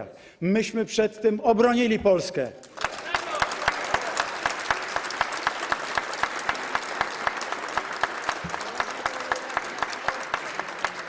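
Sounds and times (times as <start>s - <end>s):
sharp nearby claps: 2.6s - 11.0s
crowd applause: 2.7s - 11.0s.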